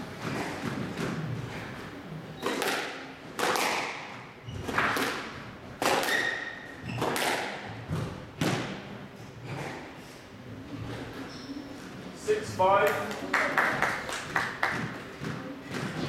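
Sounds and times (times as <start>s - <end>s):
squash ball hitting rackets and walls: 0.0s - 10.0s, 13.0s - 16.0s.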